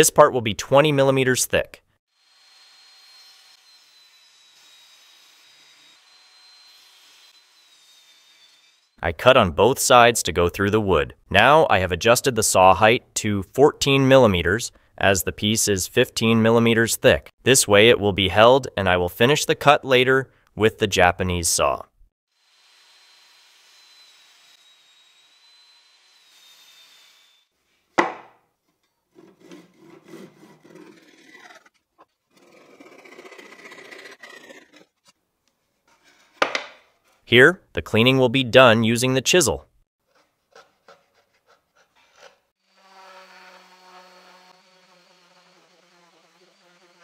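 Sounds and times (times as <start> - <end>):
hand saw cutting wood: 2.2 - 9.0, 22.5 - 27.4, 29.1 - 35.2, 40.0 - 47.0
chisel scraping wood: 29.1 - 35.2, 35.8 - 37.2, 40.0 - 42.6
orbital sander buzzing: 42.6 - 47.0.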